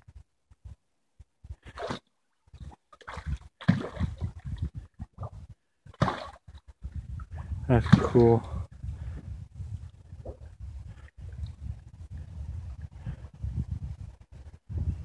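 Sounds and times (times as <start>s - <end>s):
water splashing and sloshing: 1.5s - 9.2s.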